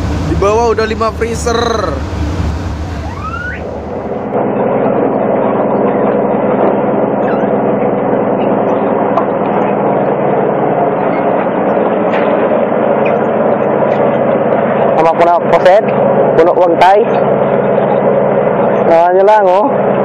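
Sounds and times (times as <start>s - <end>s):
low engine hum: 0.0s - 20.0s
short rising squeal: 1.9s - 4.4s, 7.2s - 7.8s.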